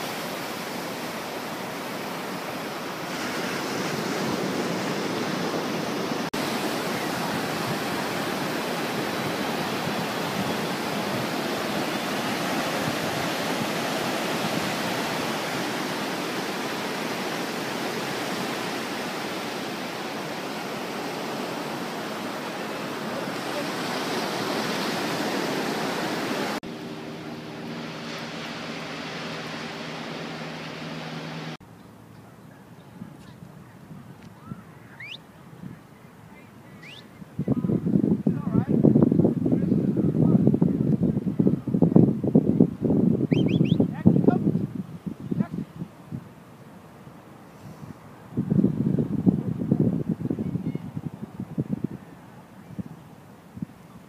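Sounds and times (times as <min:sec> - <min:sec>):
ocean surf breaking on sand: 0:00.0 - 0:31.6.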